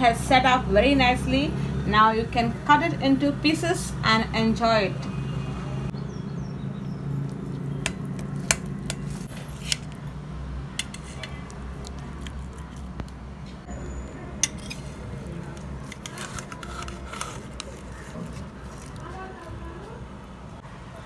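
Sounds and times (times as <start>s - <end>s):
knife tapping and scraping plate: 10.8s - 11.4s, 14.4s - 18.4s.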